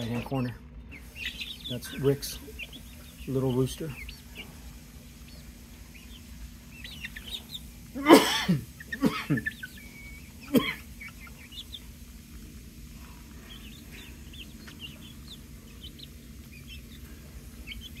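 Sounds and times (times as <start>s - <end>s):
chicks peeping and chirping: 0.0s - 18.0s.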